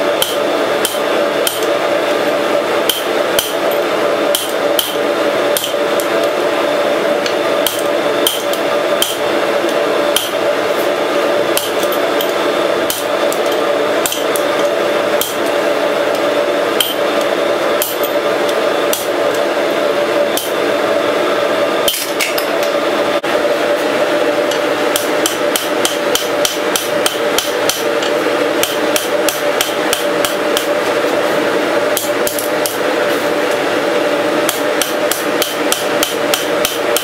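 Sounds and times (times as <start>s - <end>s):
hammer striking hot metal: 0.0s - 1.8s, 2.8s - 6.4s, 7.2s - 19.5s, 20.3s - 20.6s, 21.8s - 22.8s, 24.4s - 30.9s, 31.9s - 32.8s, 34.4s - 37.0s
steady hum: 0.0s - 37.0s.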